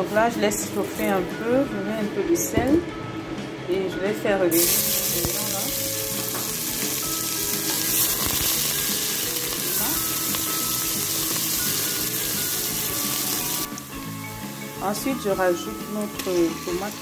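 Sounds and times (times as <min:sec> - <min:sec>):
onions sizzling in hot oil: 0:04.5 - 0:17.0.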